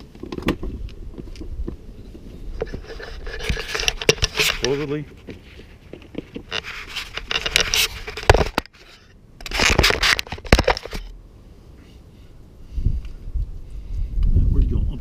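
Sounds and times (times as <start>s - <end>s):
scraping and rustling: 0.0s - 11.1s.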